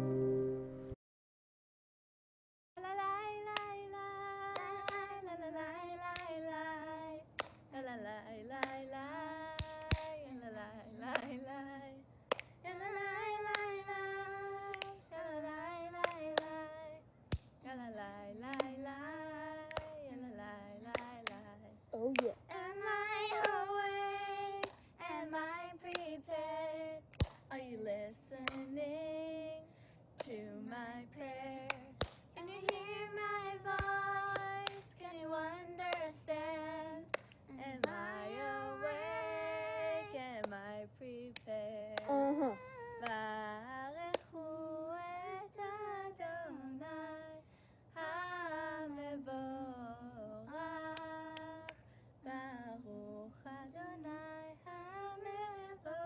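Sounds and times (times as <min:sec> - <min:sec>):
girls singing together: 0:02.8 - 0:56.0
sharp hand claps: 0:09.6 - 0:10.2, 0:11.1 - 0:11.3, 0:12.3 - 0:12.5, 0:18.5 - 0:18.7, 0:24.6 - 0:24.8, 0:27.1 - 0:27.4, 0:33.8 - 0:34.8.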